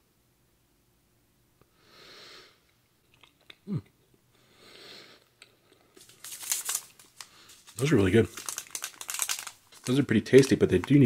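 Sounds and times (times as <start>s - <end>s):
breathing out through nose: 1.8s - 2.6s, 4.4s - 5.3s
person chewing: 2.7s - 4.1s.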